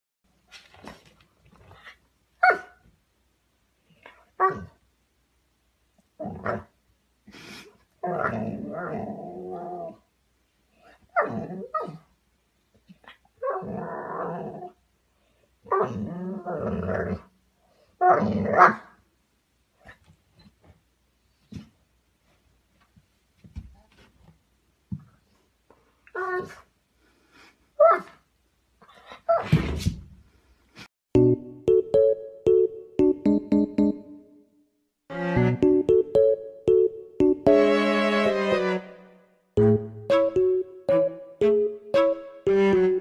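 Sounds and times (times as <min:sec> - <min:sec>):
puppy barking: 0:02.4 - 0:02.8
puppy growling: 0:08.0 - 0:10.0.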